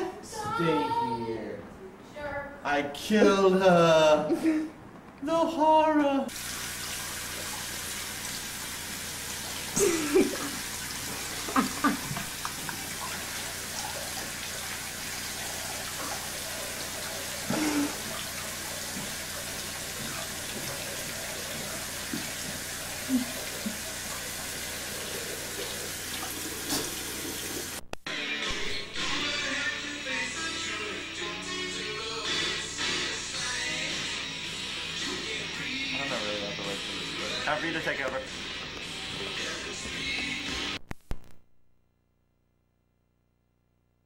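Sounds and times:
sink tap running: 6.3 - 27.8
person brushing teeth: 9.4 - 27.7.

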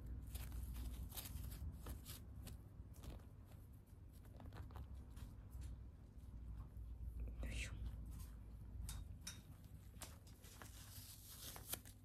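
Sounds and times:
bandage crackling and rustling: 0.0 - 6.2, 9.7 - 12.0
low steady hum: 0.0 - 12.0.

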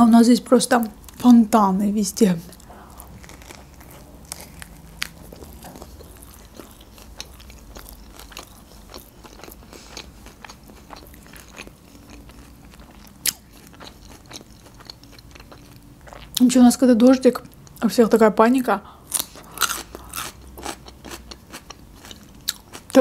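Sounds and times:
person chewing food: 2.5 - 16.4, 19.0 - 23.0
crackles and clicks of chewing: 2.5 - 16.5, 19.1 - 23.0.

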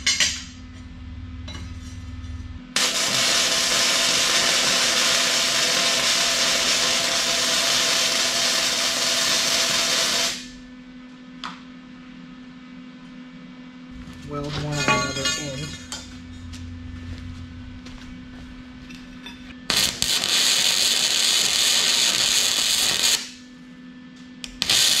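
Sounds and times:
welding arc burning: 2.8 - 10.7, 19.7 - 23.4, 24.4 - 25.0.

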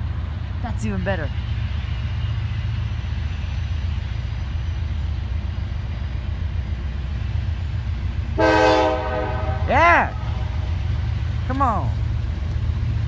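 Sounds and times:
freight train rumble: 0.0 - 13.0
locomotive horn: 8.4 - 9.8.

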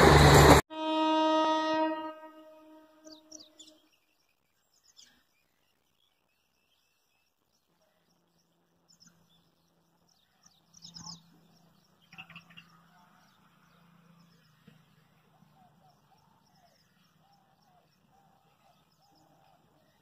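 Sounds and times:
train horn: 0.0 - 3.8.

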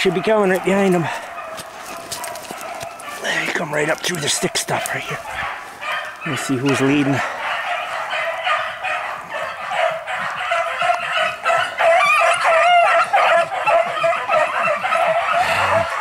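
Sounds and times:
hounds baying: 0.0 - 16.0.

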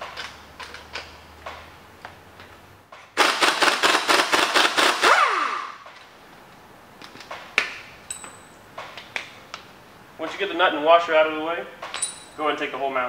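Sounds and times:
impact wrench hammering: 3.0 - 6.0.

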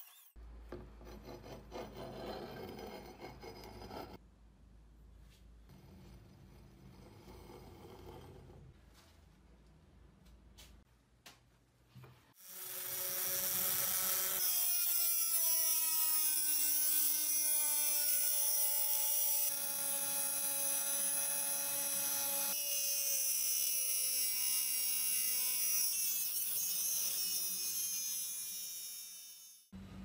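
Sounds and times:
rotary tool cutting steel: 0.0 - 0.4, 12.4 - 29.7.

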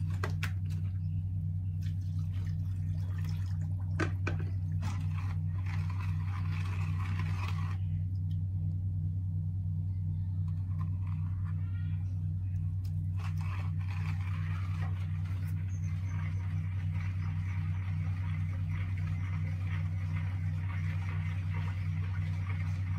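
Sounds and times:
pulsing machine hum: 0.0 - 22.9
water sloshing in container: 1.7 - 7.8, 12.8 - 22.9.

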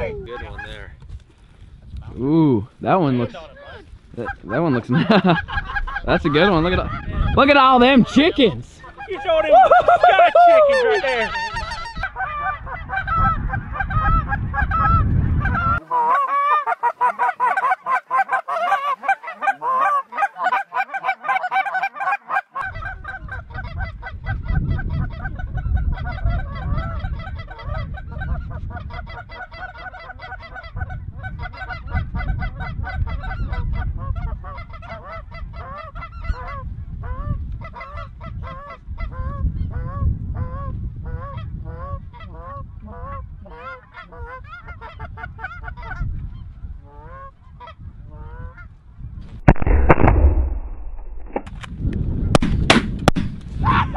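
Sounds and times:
flock of geese honking: 10.7 - 24.2, 24.9 - 46.0.

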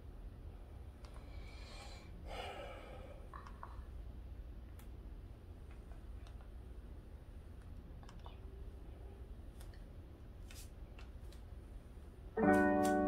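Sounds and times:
low steady hum: 0.0 - 13.0
keyboard music with chords: 12.4 - 13.0.

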